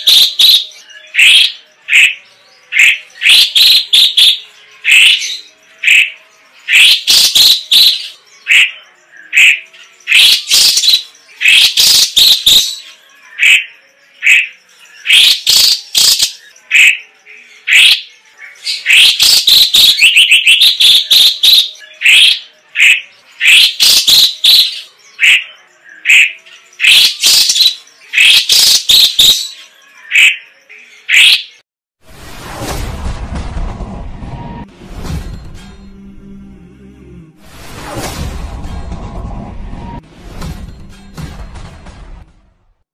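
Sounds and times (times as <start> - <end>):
bird singing in sharp bursts: 0.0 - 31.6.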